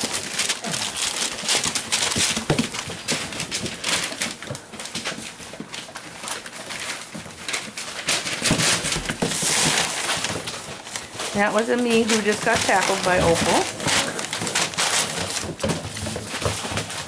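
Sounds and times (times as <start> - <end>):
paper rustling under paws: 0.0 - 17.0
puppy growls: 13.0 - 15.3.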